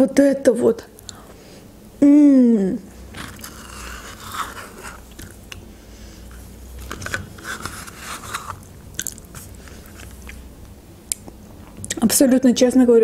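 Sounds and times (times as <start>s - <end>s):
mouth sounds eating yogurt: 2.8s - 5.7s, 7.8s - 10.5s.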